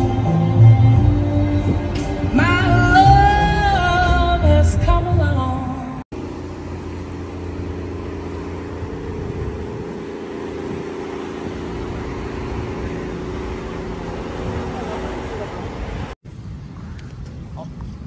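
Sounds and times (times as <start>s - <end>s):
wind buffeting microphone: 7.1s - 18.0s.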